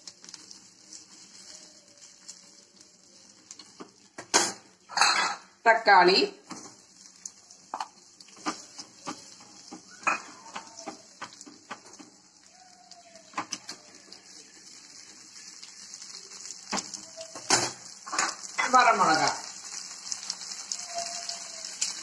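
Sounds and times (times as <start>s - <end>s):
faint sizzle of frying: 0.0s - 22.0s.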